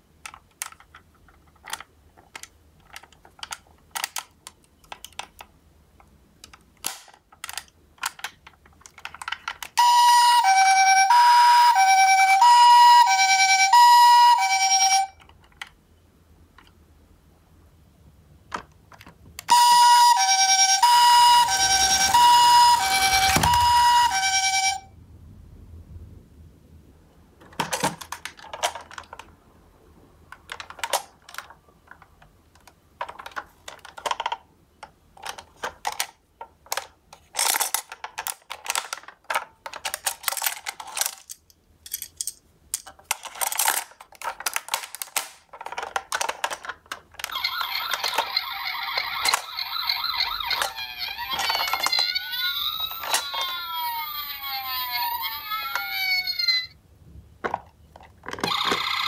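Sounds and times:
toy electronic siren wailing: 0:09.8 - 0:15.2, 0:19.5 - 0:24.9, 0:47.3 - 0:56.8, 0:58.4 - 0:59.0.

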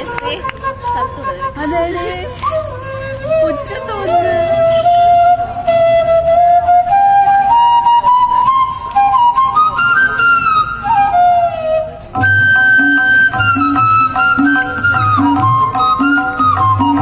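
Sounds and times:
flute melody: 0:00.0 - 0:17.0
rhythmic low beat accompaniment: 0:12.2 - 0:17.0.

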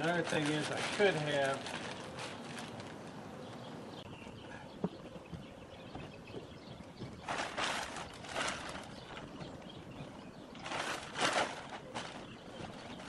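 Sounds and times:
plastic tarp rustling: 0:00.0 - 0:03.1, 0:07.2 - 0:09.4, 0:10.2 - 0:13.0
steady outdoor hiss: 0:00.0 - 0:13.0.

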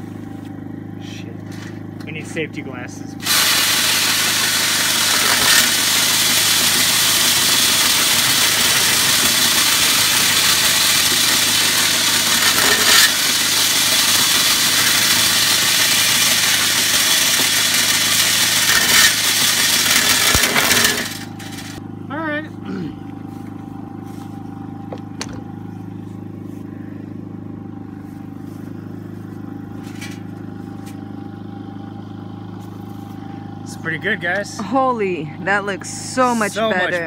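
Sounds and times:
power drill running: 0:03.2 - 0:21.8.

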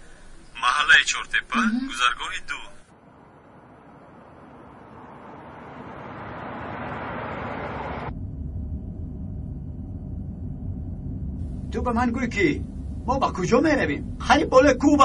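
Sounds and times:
car engine and tyre noise: 0:02.8 - 0:15.0
engine rumble inside car cabin: 0:07.6 - 0:15.0.

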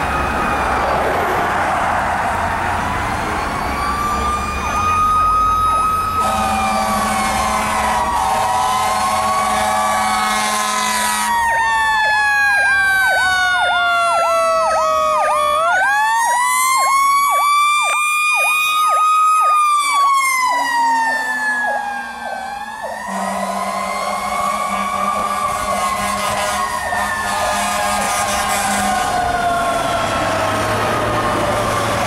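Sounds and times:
electronic yelp siren: 0:00.0 - 0:32.0
low air horn blasts: 0:06.1 - 0:11.5, 0:22.8 - 0:29.3.

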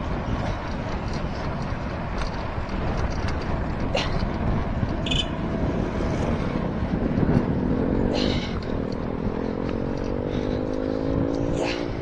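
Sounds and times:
wind and road noise: 0:00.0 - 0:12.0
vehicle engine rising in pitch: 0:07.5 - 0:12.0.

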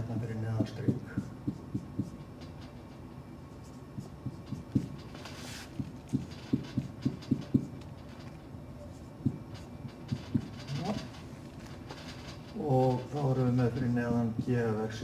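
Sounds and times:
marker tapping on whiteboard: 0:00.6 - 0:02.2, 0:05.8 - 0:07.7.

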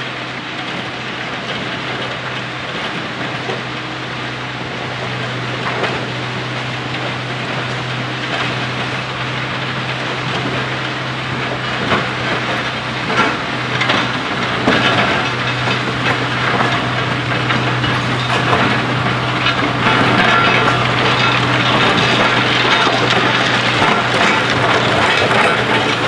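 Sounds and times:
diesel engine humming: 0:00.0 - 0:26.0
metallic clanks and knocks: 0:13.1 - 0:26.0.

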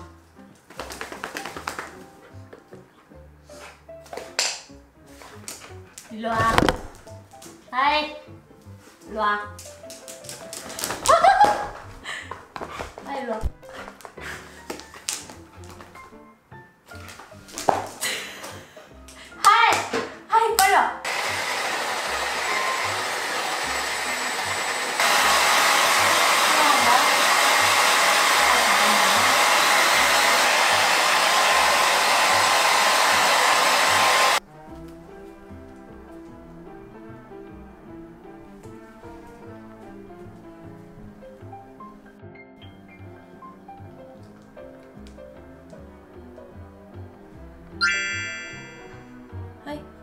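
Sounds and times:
light background music: 0:00.0 - 0:21.1, 0:31.7 - 0:50.0
hair dryer blowing: 0:21.0 - 0:34.4.

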